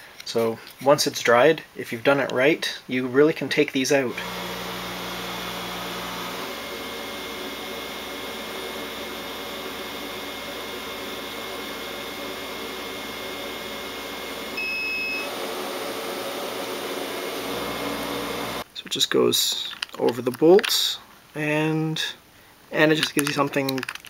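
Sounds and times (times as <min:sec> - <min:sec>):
machine hum with held tones: 0:04.1 - 0:15.7, 0:16.7 - 0:18.6
short electronic beep: 0:14.6 - 0:15.3.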